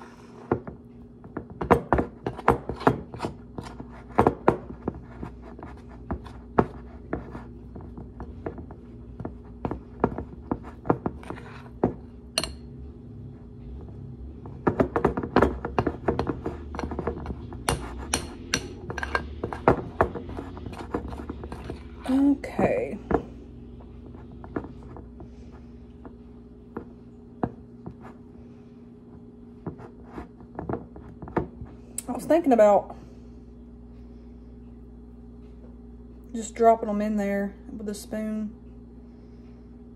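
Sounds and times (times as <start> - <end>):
spoon scraping a glass bowl: 15.4 - 22.2.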